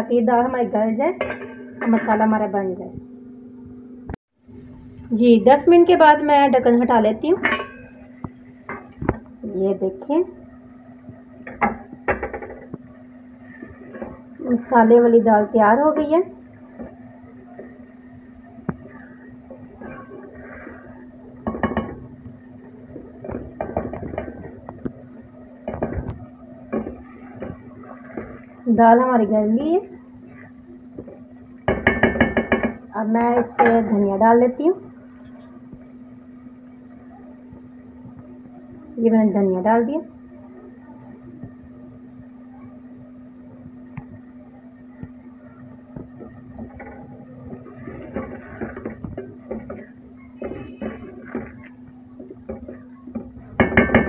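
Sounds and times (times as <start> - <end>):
steady low hum: 0.0 - 54.0
wooden spatula scraping pot: 13.4 - 28.6, 46.0 - 54.0.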